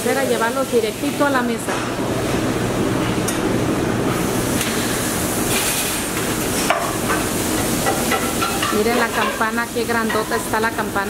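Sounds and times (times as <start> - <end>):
kitchen hum: 0.0 - 11.0
utensils and pans clattering: 6.5 - 10.9.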